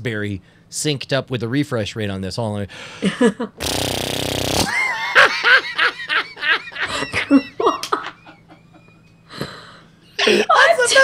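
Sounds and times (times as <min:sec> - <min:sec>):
people laughing: 0:03.0 - 0:03.6, 0:04.6 - 0:09.5
blown raspberry lip trill: 0:03.6 - 0:04.7.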